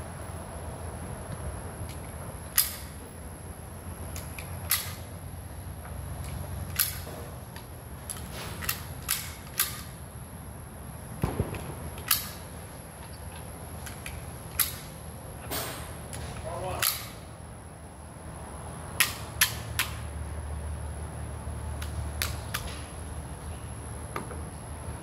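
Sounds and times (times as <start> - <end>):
faint high whine: 0.0 - 25.0
cartridges clicking into magazine: 1.8 - 3.0, 4.1 - 5.1, 6.2 - 10.0, 11.2 - 15.0, 16.1 - 17.3, 19.0 - 20.1, 21.8 - 22.9.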